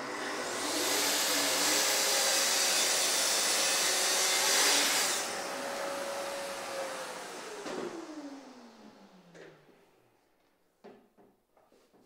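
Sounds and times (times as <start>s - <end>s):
circular saw cutting wood: 0.0s - 9.3s.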